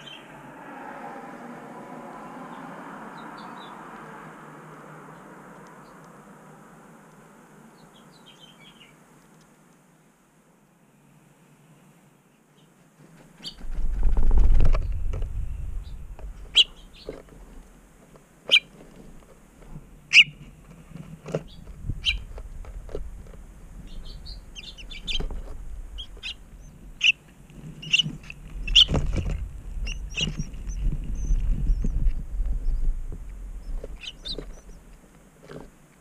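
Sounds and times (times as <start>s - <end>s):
small songbirds chirping: 0.0s - 0.4s, 2.2s - 4.2s, 5.0s - 6.3s, 7.1s - 9.5s, 10.8s - 36.0s
low rumble: 13.6s - 17.7s, 21.5s - 27.0s, 28.1s - 34.9s.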